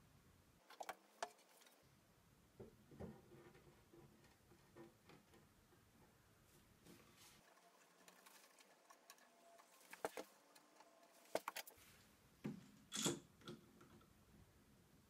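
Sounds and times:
metal clamps clicking and knocking: 0:12.9 - 0:13.9.

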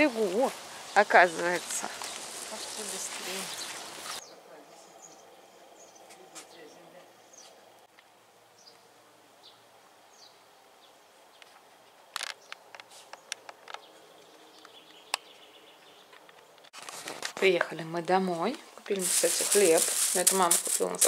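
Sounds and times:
small birds chirping: 0:00.0 - 0:07.9, 0:08.5 - 0:16.7.

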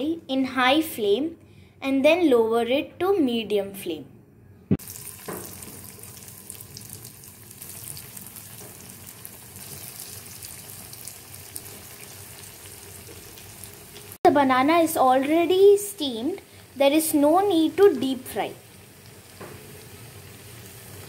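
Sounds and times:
cutlets sizzling in hot oil: 0:04.8 - 0:14.2, 0:15.4 - 0:21.0.

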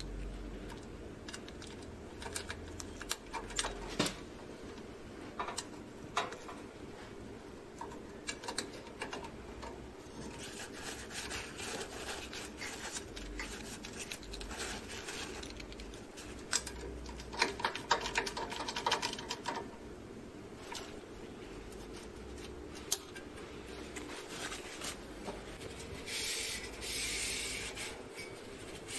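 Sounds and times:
paper towel rubbing and crinkling: 0:10.2 - 0:16.4, 0:23.7 - 0:28.0.

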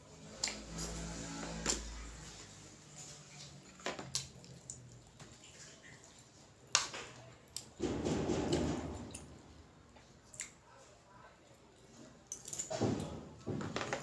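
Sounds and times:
soft squishy scraping of food: 0:00.0 - 0:07.8.

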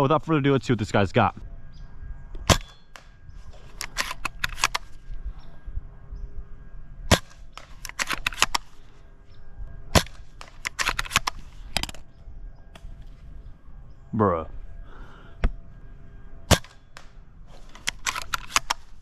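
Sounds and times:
airsoft rifle shots: 0:02.4 - 0:05.0, 0:07.1 - 0:08.7, 0:09.9 - 0:12.0, 0:16.5 - 0:19.0
rifle bolt clicks: 0:02.4 - 0:05.0, 0:07.1 - 0:08.7, 0:10.0 - 0:12.0, 0:17.7 - 0:19.0.

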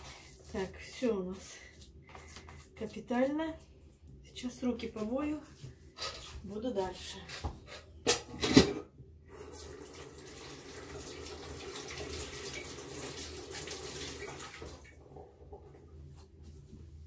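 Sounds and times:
water tap running: 0:09.3 - 0:15.1.

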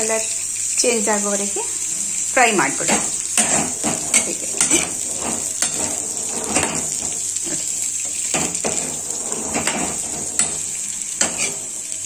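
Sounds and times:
berries sizzling in oil: 0:00.0 - 0:12.0
ladle scraping and knocking pan: 0:02.8 - 0:12.0.

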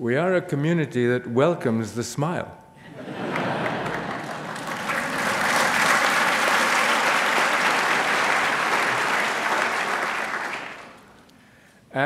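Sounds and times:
audience applauding: 0:03.0 - 0:11.3.

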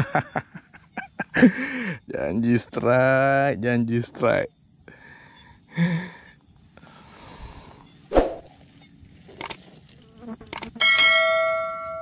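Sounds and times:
insects buzzing: 0:00.0 - 0:11.0
clicks: 0:09.4 - 0:09.6, 0:10.5 - 0:10.7.

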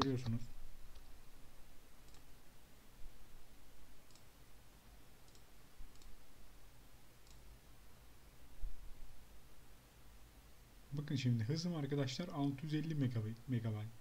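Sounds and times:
low room noise: 0:00.0 - 0:14.0
computer mouse clicks: 0:02.0 - 0:02.3, 0:04.0 - 0:04.4, 0:05.2 - 0:06.2, 0:07.2 - 0:07.5.

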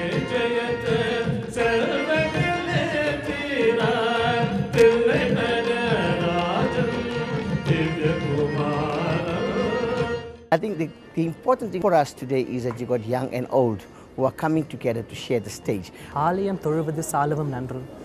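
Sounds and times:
man singing into a microphone: 0:00.0 - 0:10.2.

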